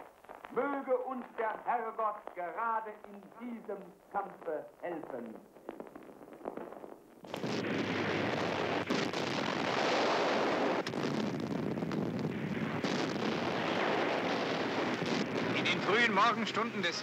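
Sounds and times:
sharp artillery bangs: 7.3s - 16.7s.

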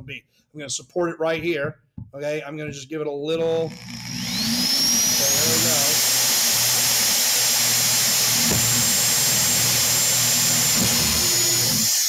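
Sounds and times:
electric drill boring plastic pipe: 3.6s - 12.0s.

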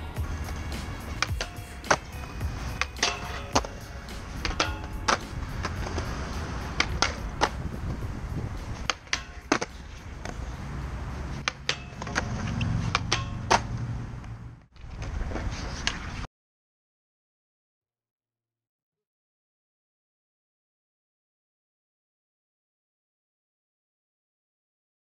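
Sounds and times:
background music: 0.0s - 9.6s.

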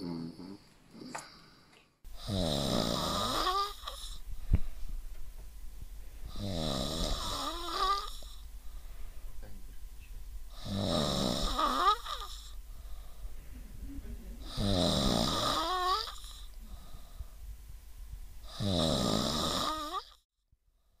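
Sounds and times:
person snoring: 0.0s - 4.2s, 6.3s - 8.4s, 10.5s - 13.2s, 14.4s - 17.3s, 18.4s - 20.2s.

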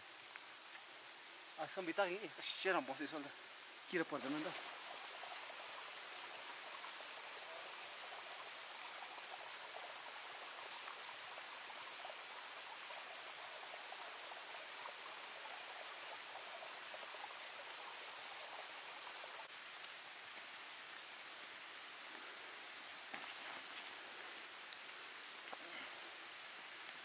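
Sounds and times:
water hissing: 1.6s - 9.7s
faint ticks: 24.6s - 25.7s.

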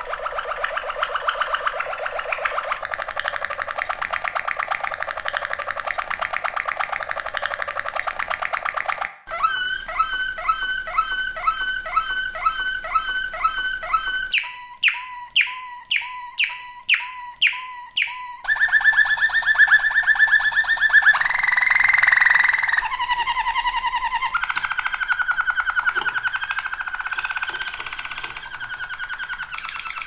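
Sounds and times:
canary singing: 0.0s - 30.0s.

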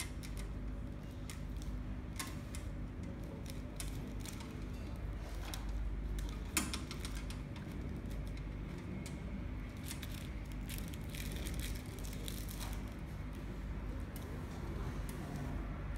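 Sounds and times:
plastic film crinkling: 6.2s - 13.5s.

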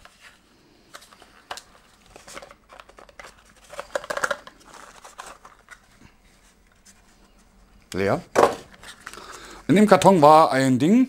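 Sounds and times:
card flaps rustling: 0.0s - 7.2s.

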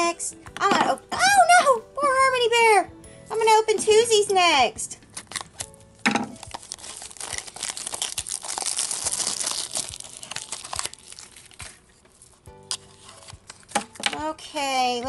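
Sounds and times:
plastic wrapping crinkling and tearing: 5.0s - 14.0s.

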